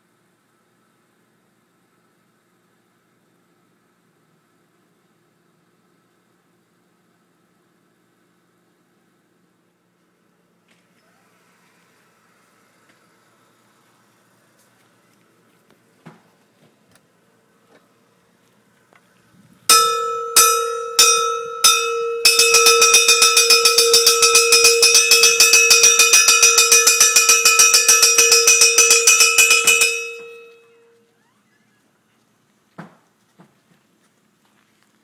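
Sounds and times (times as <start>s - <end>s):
large bell ringing: 19.7s - 31.0s.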